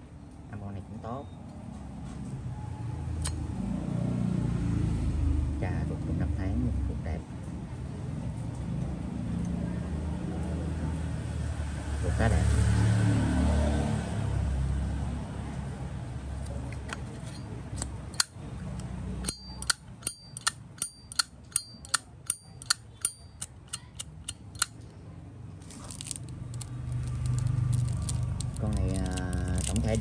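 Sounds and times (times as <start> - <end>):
low traffic rumble: 0.0 - 30.0
high metallic lid ping: 19.2 - 24.7
lighter lid clicking open and shut: 19.2 - 24.7.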